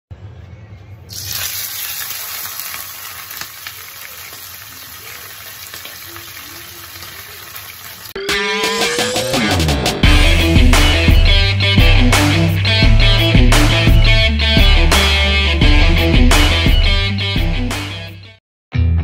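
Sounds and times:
fish sizzling in hot oil: 1.1 - 8.2
music: 8.2 - 19.0.

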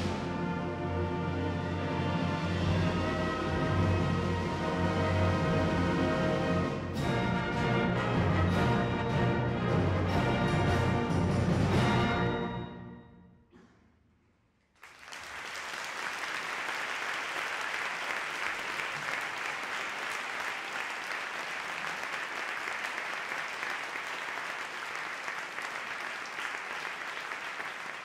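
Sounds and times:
audience applauding: 14.8 - 28.0.

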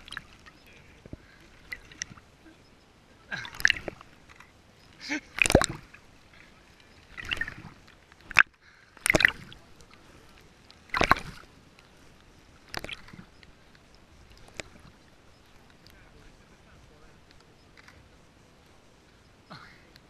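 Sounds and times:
river water splashing against camera: 0.0 - 2.4, 3.3 - 15.0.

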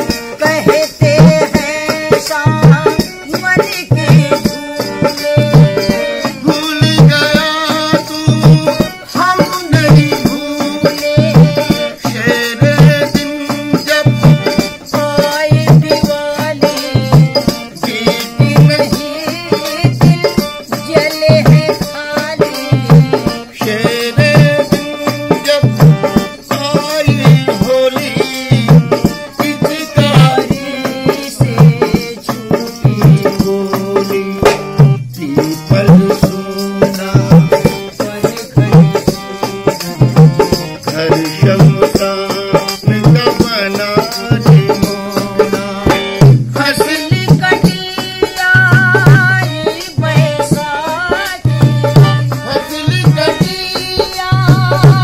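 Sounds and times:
elderly woman singing: 0.0 - 34.6, 46.6 - 55.0
dholak drum beat: 0.0 - 55.0
harmonium chords: 0.0 - 55.0.

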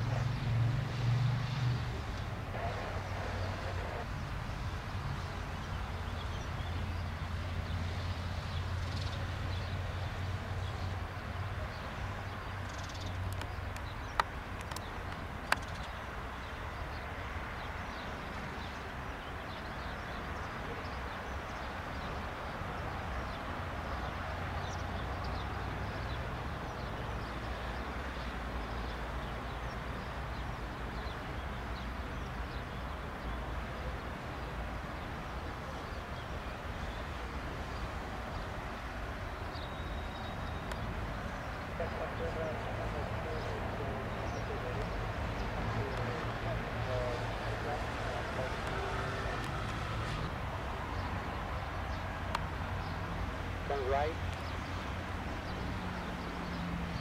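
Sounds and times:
birds chirping: 0.0 - 57.0
distant turboprop engines running: 39.4 - 57.0.

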